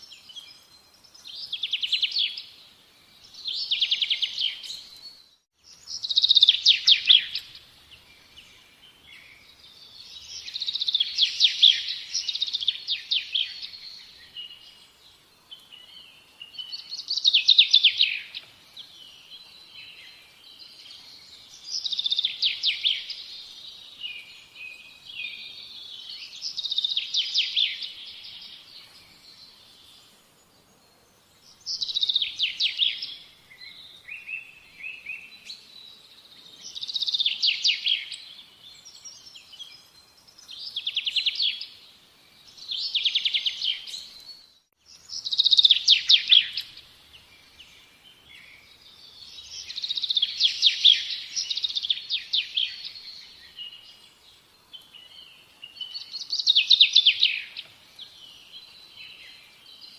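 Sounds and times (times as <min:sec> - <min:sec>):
songbird trilling: 0:05.9 - 0:07.6, 0:45.0 - 0:46.8, 0:55.0 - 0:57.7.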